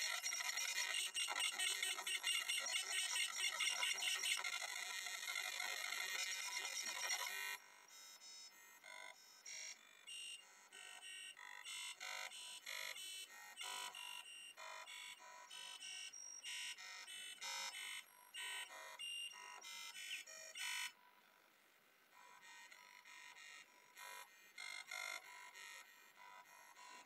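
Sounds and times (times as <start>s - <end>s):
buzzy electronic tones from speakers: 0.0s - 7.3s.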